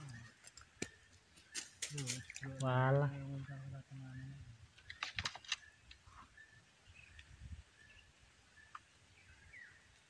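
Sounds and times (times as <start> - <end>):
sharp clicks: 4.8 - 6.0.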